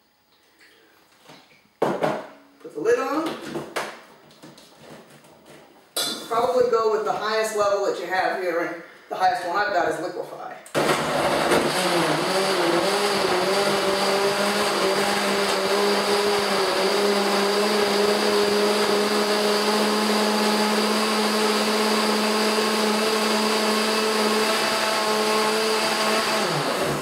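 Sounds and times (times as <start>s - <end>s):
blender running: 10.7s - 27.0s.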